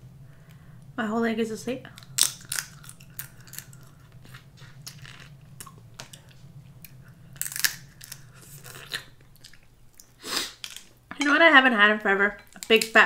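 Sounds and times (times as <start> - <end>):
crab shell cracking: 1.9 - 10.9
chewing: 2.0 - 10.9.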